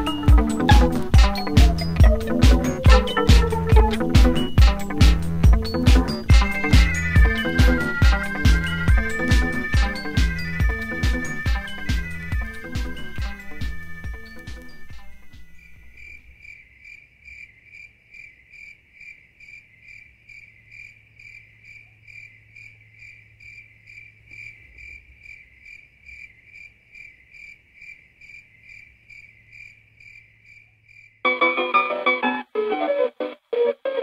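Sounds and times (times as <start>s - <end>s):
cricket chirping: 5.7s - 31.3s.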